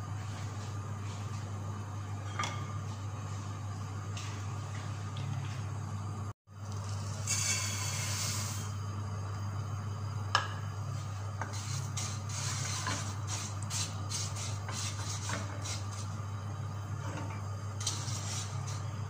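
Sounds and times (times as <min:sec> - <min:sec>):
light sizzling: 0:06.6 - 0:09.8, 0:10.8 - 0:19.0
spoon scraping pot: 0:11.4 - 0:16.2, 0:17.0 - 0:18.9.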